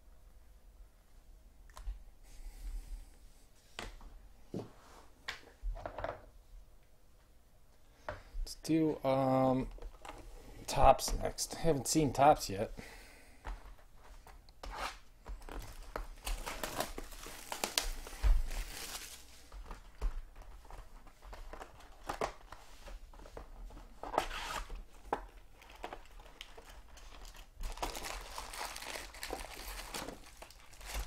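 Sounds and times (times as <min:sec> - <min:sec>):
plastic wrapper crinkling: 0:15.4 - 0:22.6, 0:24.0 - 0:31.0.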